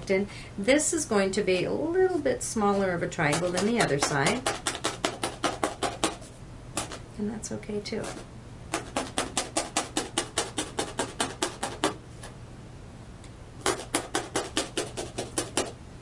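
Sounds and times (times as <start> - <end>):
felting needle tapping: 3.2 - 7.0, 8.0 - 12.0, 13.6 - 15.7.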